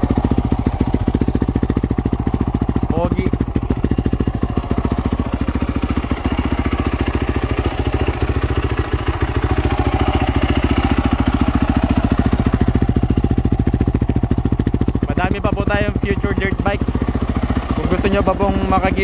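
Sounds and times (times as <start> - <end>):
dirt bike engine idling: 0.0 - 19.0.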